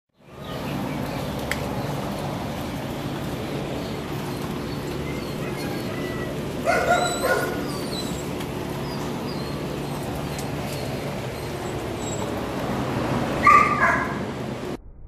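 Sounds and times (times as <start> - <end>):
steady background hum: 0.2 - 14.8
dog barking: 5.3 - 8.2, 13.4 - 14.2.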